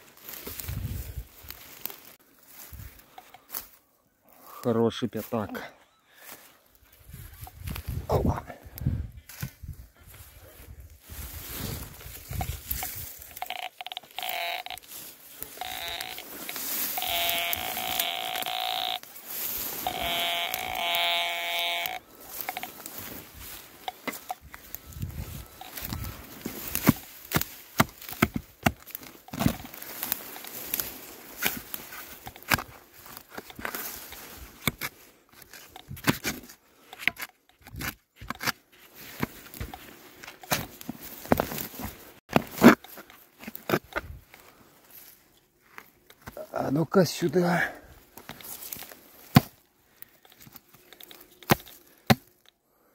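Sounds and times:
spade digging into soil: 12.0 - 44.2, 50.3 - 52.4
metal detector target tone: 12.4 - 24.5, 25.4 - 26.0.

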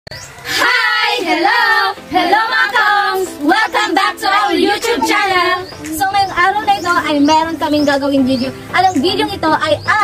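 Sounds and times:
girls singing together: 0.4 - 6.1.

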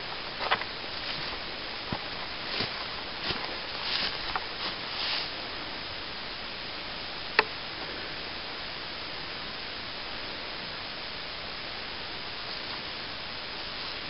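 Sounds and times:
steady hiss: 0.0 - 14.0
stalks rustling by hand: 0.4 - 5.4.

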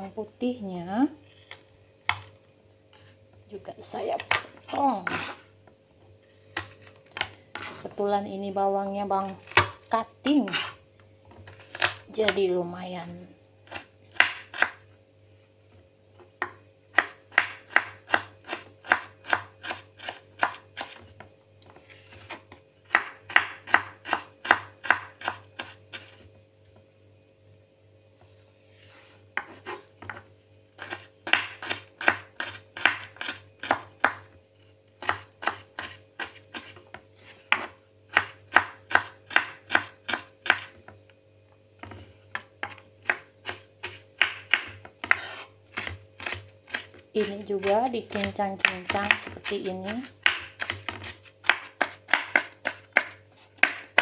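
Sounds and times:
knife chopping on wooden board: 1.4 - 2.3, 9.4 - 9.9, 13.7 - 14.8, 16.4 - 21.1, 22.1 - 26.2, 29.4 - 30.2, 30.8 - 34.3, 35.0 - 40.8, 41.8 - 54.0.

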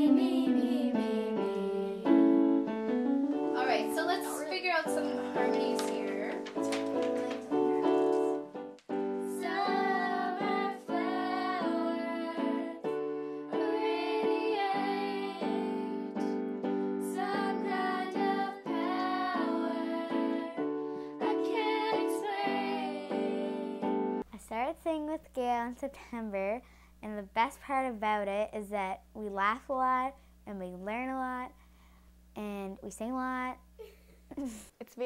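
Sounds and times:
voices singing pop song: 0.0 - 2.2, 9.3 - 16.4, 17.0 - 24.0
electronic keyboard chords: 0.0 - 24.2.

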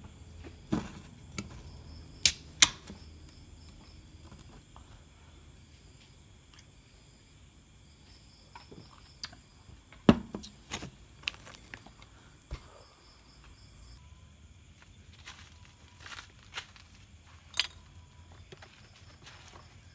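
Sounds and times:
faint high whine: 11.4 - 19.9.

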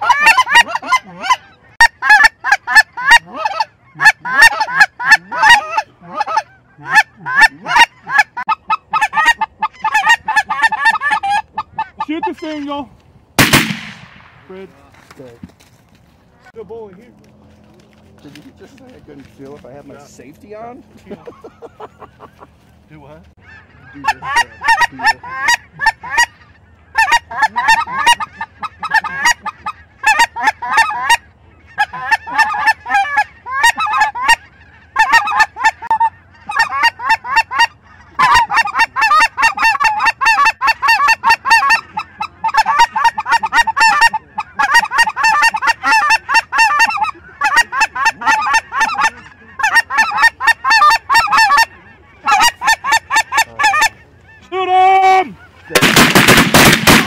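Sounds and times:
geese honking: 0.0 - 15.6, 17.5 - 57.0.

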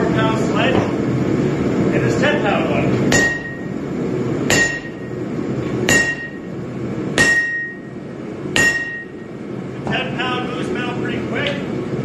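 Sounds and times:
metallic anvil ring: 3.1 - 3.7, 4.5 - 5.1, 5.9 - 6.5, 7.2 - 7.9, 8.6 - 9.2
sledgehammer striking hot steel: 3.1 - 3.7, 4.4 - 5.2, 5.8 - 6.5, 7.1 - 7.9, 8.5 - 9.2.

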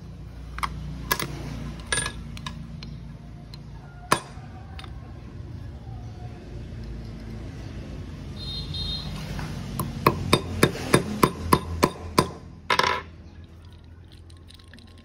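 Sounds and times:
hammer striking metal: 4.1 - 4.4, 9.8 - 13.1.

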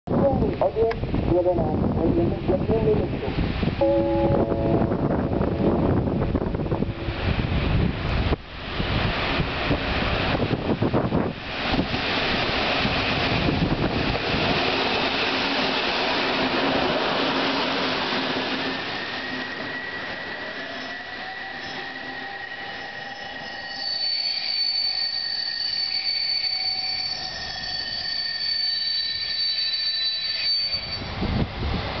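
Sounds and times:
train rumbling past: 1.0 - 32.0
train brakes squealing: 17.5 - 31.3.

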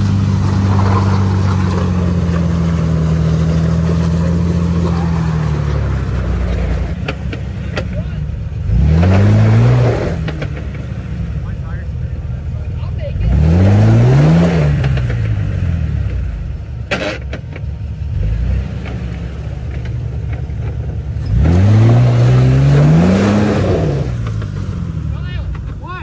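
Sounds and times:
tyres spinning in mud: 0.0 - 11.1
engine revving hard: 8.6 - 10.5, 13.2 - 16.1, 21.2 - 25.3.

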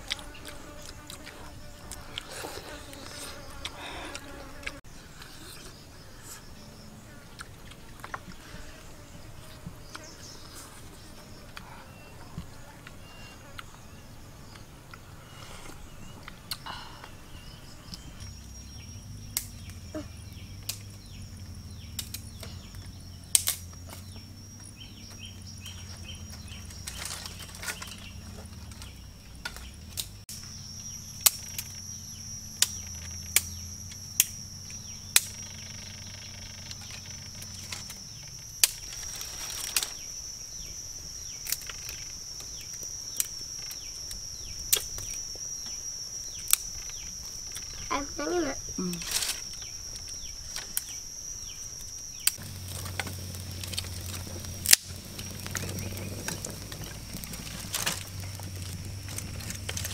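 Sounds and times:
high insect drone: 0.0 - 59.9
dry sticks snapping: 19.3 - 19.8, 21.8 - 24.1, 36.7 - 40.0, 52.2 - 59.9.

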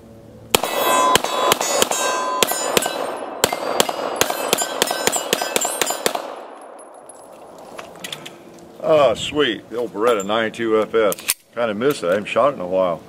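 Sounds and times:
pistol shots: 0.5 - 7.0
steel targets ringing: 0.5 - 7.3.

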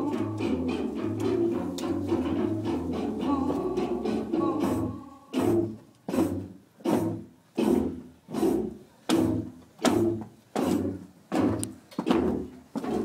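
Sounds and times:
heavy drum beat: 0.0 - 8.0.

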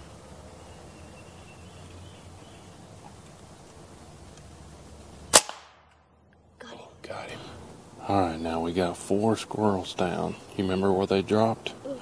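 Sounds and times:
faint background noise: 0.0 - 12.0
air rifle shot: 5.3 - 6.1.

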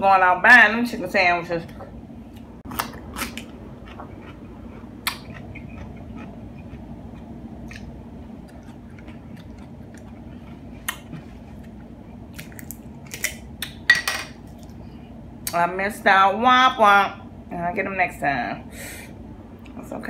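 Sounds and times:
chewing crunchy taco: 2.4 - 13.7.

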